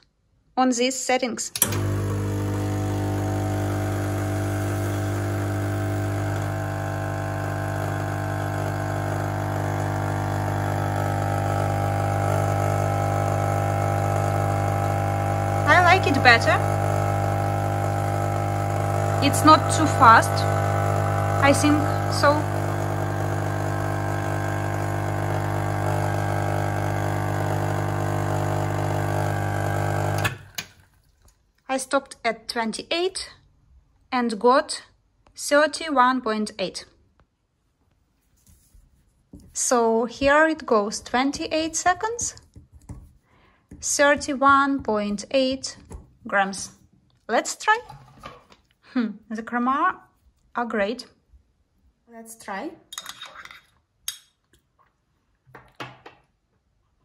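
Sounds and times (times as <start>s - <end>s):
espresso machine pump humming: 1.6s - 30.5s.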